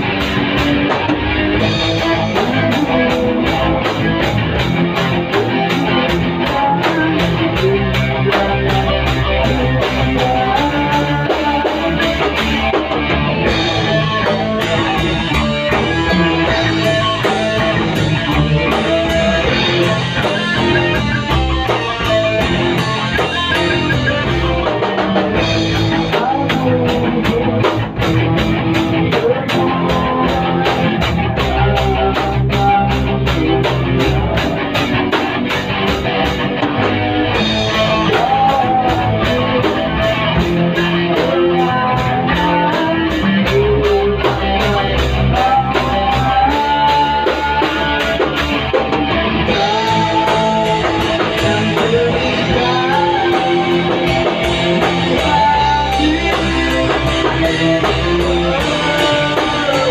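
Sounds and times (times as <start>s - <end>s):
bass guitar: 0.0s - 59.9s
drum kit with cymbal beat: 0.0s - 59.9s
electric guitars: 0.0s - 59.9s.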